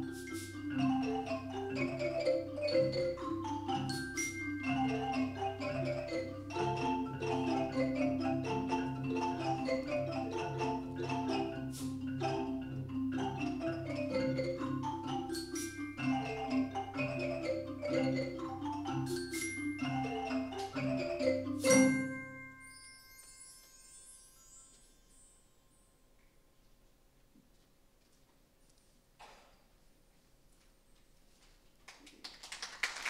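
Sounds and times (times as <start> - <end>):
mallet percussion music: 0.0 - 26.2.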